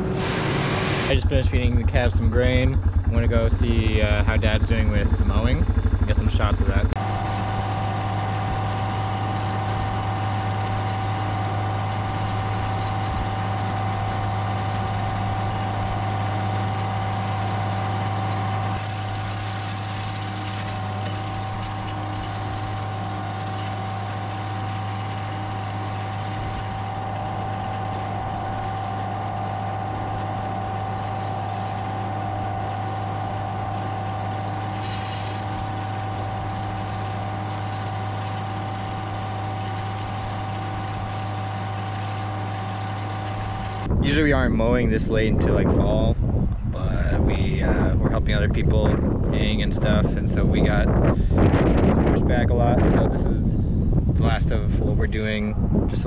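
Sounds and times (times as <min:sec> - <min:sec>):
mower cutting dry grass: 0:00.0 - 0:46.0
steady high hum: 0:00.0 - 0:56.0
tractor engine running under load: 0:00.0 - 0:56.0.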